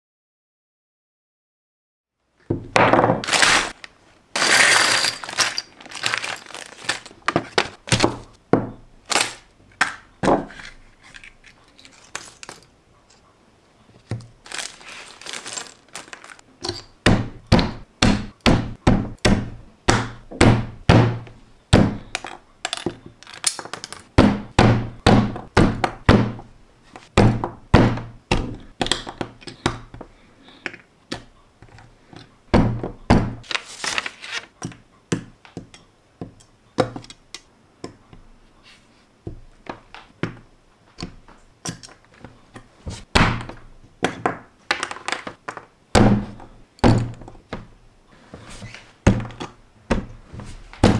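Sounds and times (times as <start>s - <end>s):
plastic bag rustling: 3.2s - 8.3s, 10.8s - 12.7s, 14.3s - 16.4s, 33.4s - 34.5s
plastic pieces clicking together: 11.0s - 12.7s, 22.2s - 24.1s.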